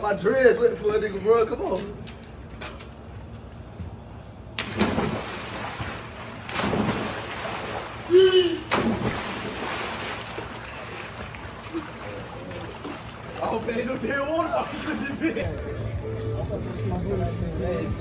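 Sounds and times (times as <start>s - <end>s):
people splashing into pool: 4.6s - 14.0s
water churning: 4.6s - 15.4s.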